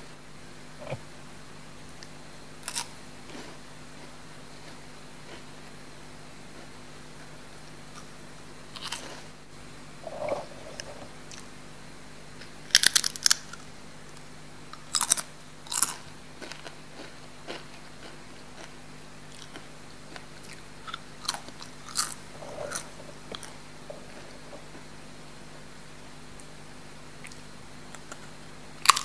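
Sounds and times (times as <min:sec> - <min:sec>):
chips being crunched: 0:02.6 - 0:02.9, 0:12.7 - 0:13.6, 0:14.8 - 0:16.7.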